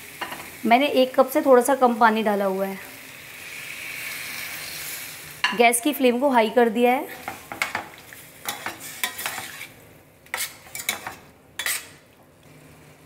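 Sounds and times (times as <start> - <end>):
spatula scraping metal pan: 8.5 - 12.0.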